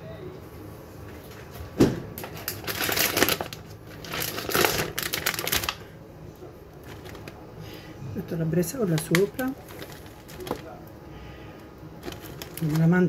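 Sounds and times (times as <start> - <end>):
plastic pack crackling: 2.2 - 6.0, 6.7 - 7.4, 8.6 - 10.9, 12.0 - 13.0.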